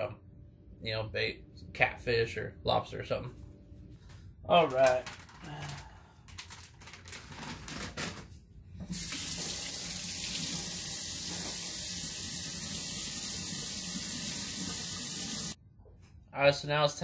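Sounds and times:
water running into steel sink: 0:08.9 - 0:15.6.

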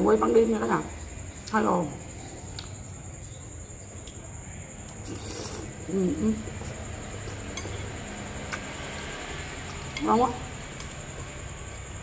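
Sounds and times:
chewing: 0:06.4 - 0:11.4.

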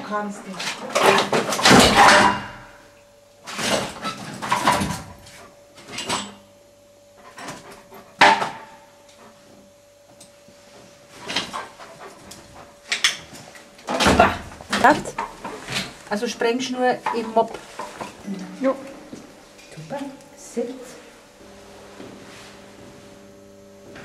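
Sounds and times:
dog sniffing: 0:11.2 - 0:13.0
shuffling: 0:14.5 - 0:16.4.

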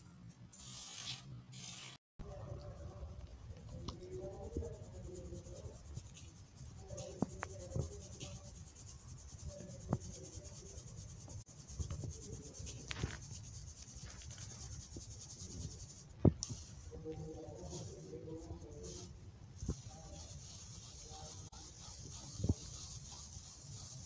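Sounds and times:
powder scratching through metal sieve: 0:00.6 - 0:24.0.

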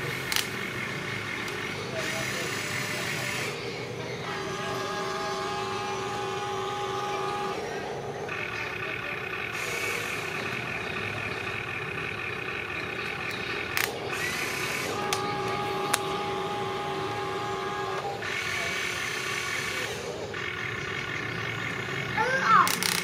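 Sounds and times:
small electric motors whining: 0:00.0 - 0:23.0
sharp clicks: 0:00.2 - 0:03.5, 0:12.9 - 0:16.2, 0:22.6 - 0:23.0.

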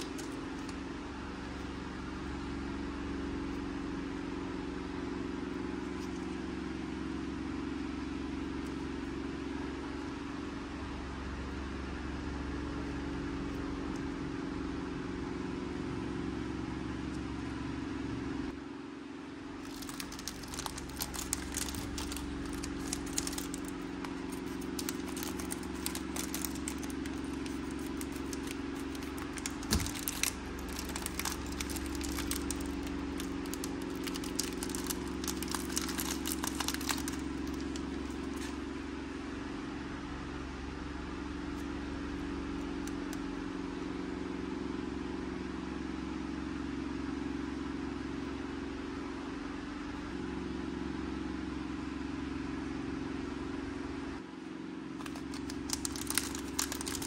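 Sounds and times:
plastic crinkling and clicks: 0:00.0 - 0:00.8, 0:19.6 - 0:38.6, 0:55.0 - 0:57.0
low hum: 0:19.5 - 0:39.6.

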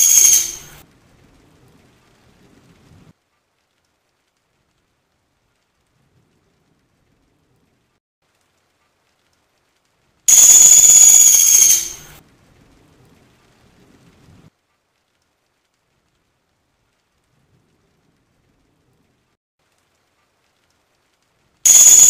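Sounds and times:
woodpecker high-pitched call: 0:00.0 - 0:00.7, 0:10.3 - 0:12.1.

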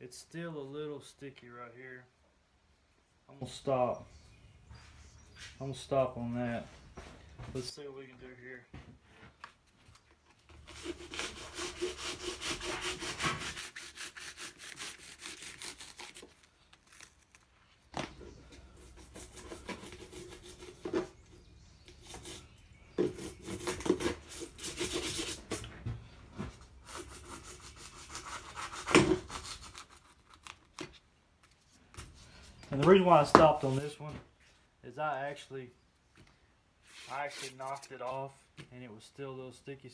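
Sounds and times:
knife sawing through foam: 0:10.6 - 0:16.3, 0:18.8 - 0:20.9, 0:23.1 - 0:25.7, 0:26.8 - 0:30.1.

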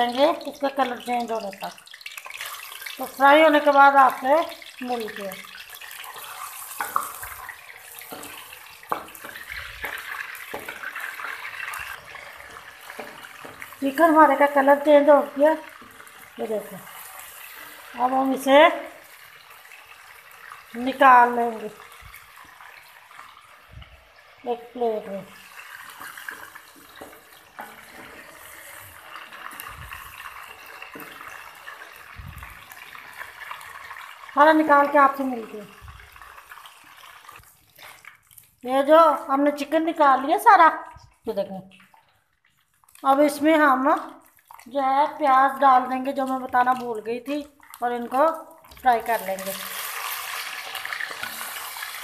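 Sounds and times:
chicken sizzling in hot oil: 0:00.0 - 0:38.5, 0:44.7 - 0:52.0
wooden spoon knocking on pan: 0:08.0 - 0:11.2, 0:12.6 - 0:13.8.

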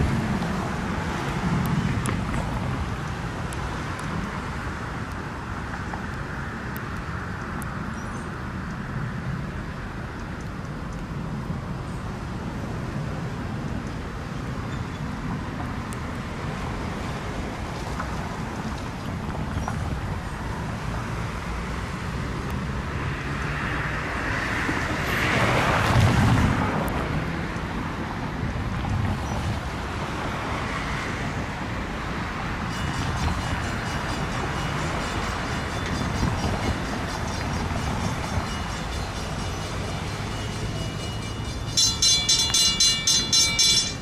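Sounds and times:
wind on microphone: 0:00.0 - 0:04.6, 0:31.4 - 0:41.0.

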